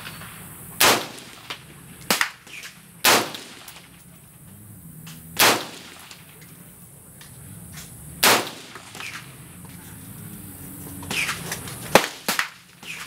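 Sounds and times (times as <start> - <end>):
rifle gunshots: 0.0 - 4.0, 5.2 - 6.4, 8.2 - 9.3, 11.1 - 13.0.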